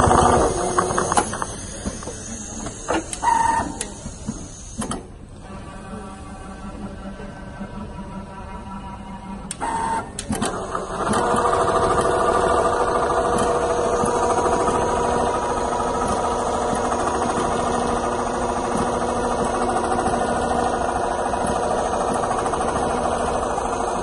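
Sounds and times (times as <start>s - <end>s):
sewing machine stitching: 9.7s - 24.0s.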